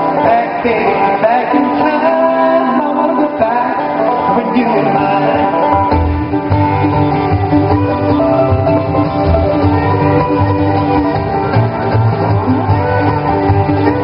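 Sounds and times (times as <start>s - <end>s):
acoustic string band playing bluegrass: 0.0s - 14.0s
low bass line: 5.3s - 14.0s.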